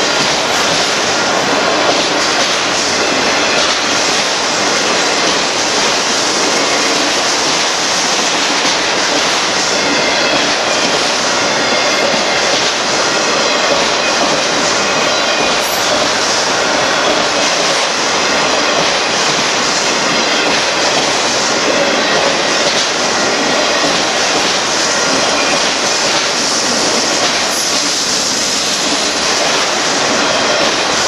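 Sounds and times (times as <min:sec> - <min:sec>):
freight train rolling past: 0:00.0 - 0:31.0.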